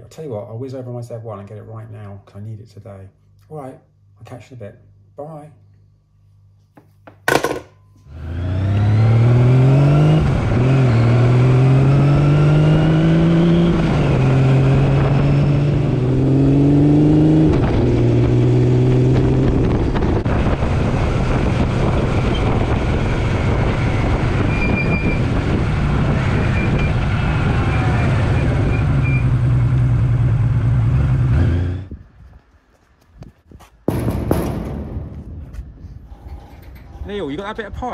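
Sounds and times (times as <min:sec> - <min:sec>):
motorcycle engine accelerating: 0:08.1 - 0:32.4
wind rushing: 0:17.3 - 0:28.8.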